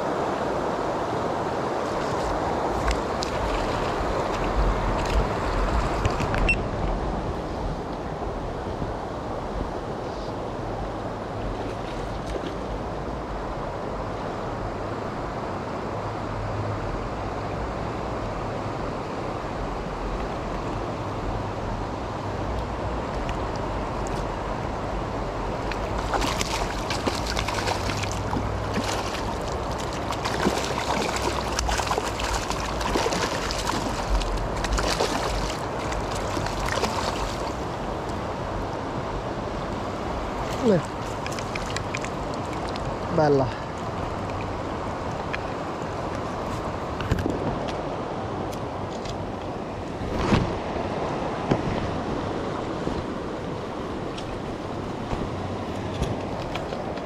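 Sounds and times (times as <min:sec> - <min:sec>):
river water rushing: 0:00.0 - 0:57.0
sharp crackles and splashes: 0:01.8 - 0:06.6, 0:25.5 - 0:38.6, 0:39.9 - 0:47.3.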